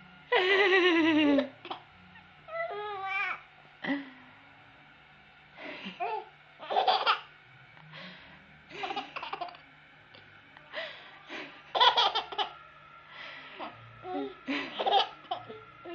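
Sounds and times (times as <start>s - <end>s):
baby laughing: 6.0s - 7.3s, 11.8s - 12.6s, 13.6s - 15.6s.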